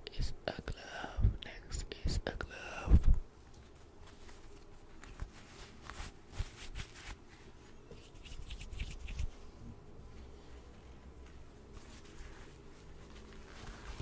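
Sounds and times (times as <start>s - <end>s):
hands rustling near microphone: 2.9s - 14.0s.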